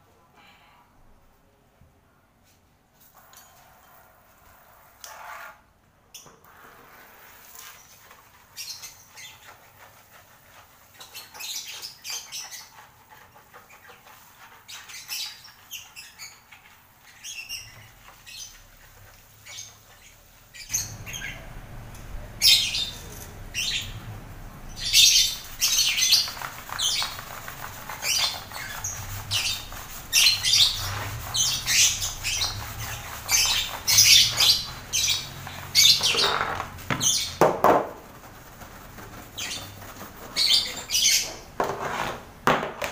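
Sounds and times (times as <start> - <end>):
lovebirds chirping and squawking: 7.5 - 37.4, 38.8 - 41.5
low rushing noise: 20.7 - 25.9.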